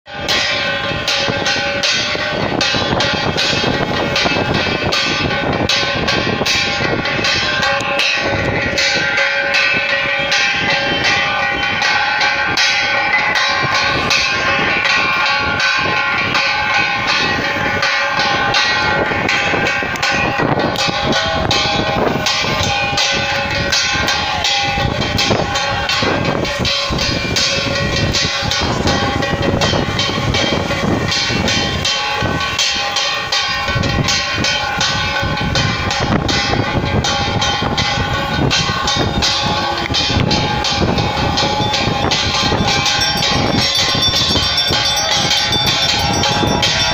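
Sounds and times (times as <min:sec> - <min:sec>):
bells and cymbals clanging: 0:00.1 - 0:46.9.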